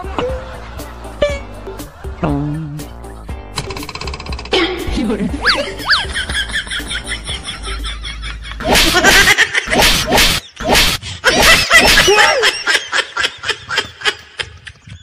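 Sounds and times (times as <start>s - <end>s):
loud laughter: 5.4s - 10.6s, 11.2s - 15.0s.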